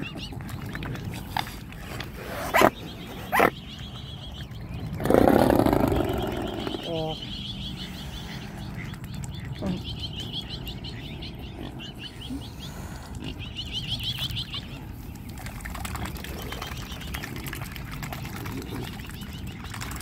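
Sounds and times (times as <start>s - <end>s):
swans splashing and dabbling: 0.0s - 20.0s
high rapid peeping calls: 2.5s - 17.6s.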